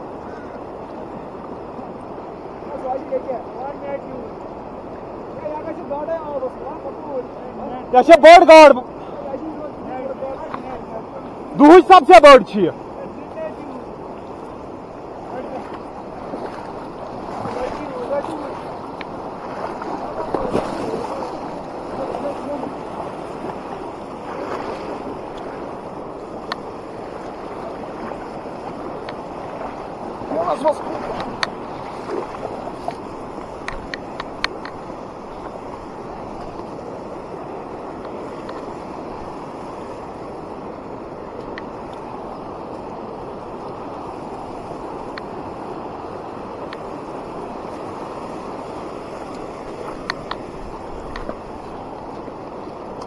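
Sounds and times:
stream rushing over stones: 0.0 - 53.0
faint clicks: 26.4 - 26.7, 32.8 - 34.8, 49.3 - 51.4.

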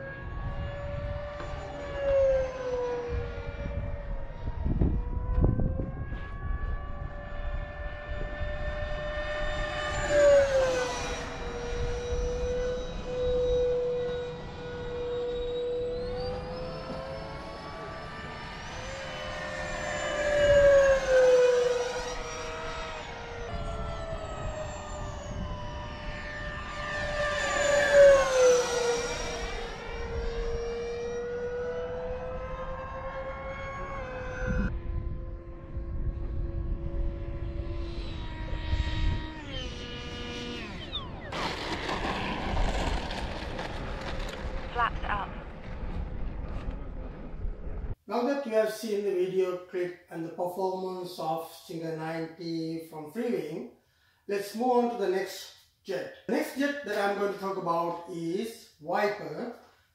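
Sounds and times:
electric ducted fan jet whining: 0.0 - 52.6
low rumbles: 34.0 - 48.0.

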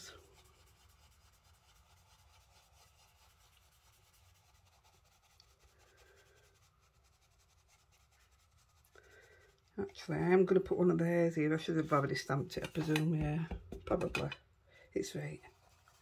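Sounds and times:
blending tool rubbing paper: 15.4 - 16.0.

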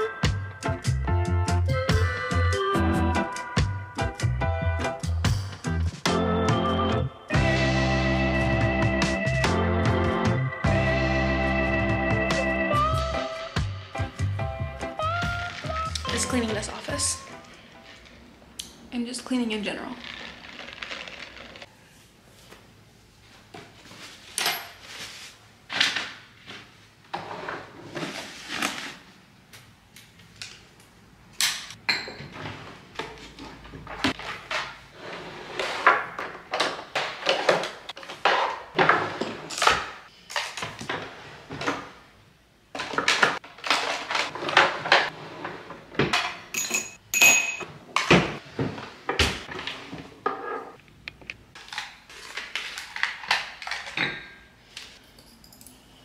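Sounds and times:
wooden drawers opening and shutting: 31.6 - 42.1, 42.7 - 46.5, 47.7 - 50.8
bottles and jars clinking: 31.8 - 32.4, 46.1 - 47.7.

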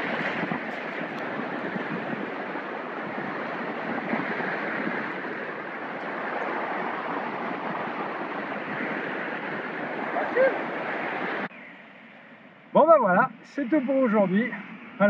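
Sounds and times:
wind rushing on microphone: 0.0 - 11.6.

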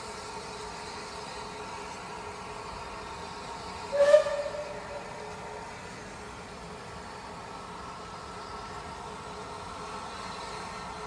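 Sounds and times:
steam locomotive whistle: 3.9 - 5.4.

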